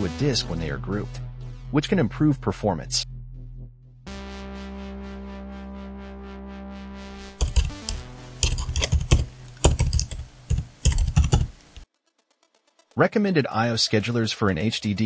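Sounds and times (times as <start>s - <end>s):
keyboard typing clicks: 7.3s - 11.8s.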